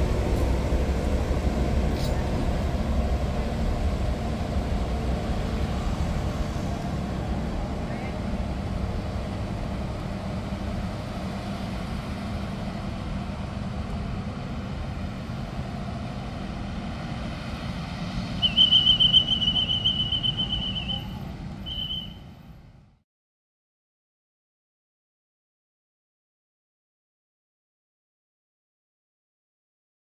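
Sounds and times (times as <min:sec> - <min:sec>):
train rumbling: 0:00.0 - 0:23.0
shrill trilled whistle: 0:18.4 - 0:22.2.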